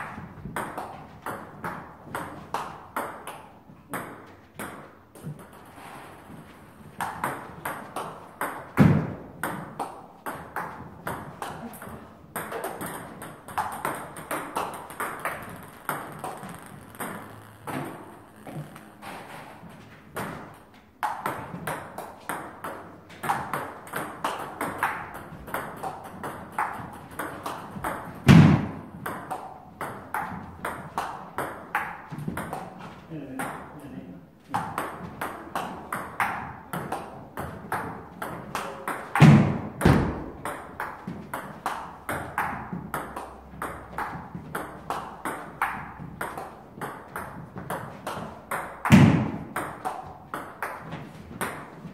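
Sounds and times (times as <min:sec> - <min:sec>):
table tennis ball clicking: 0:12.4 - 0:19.0.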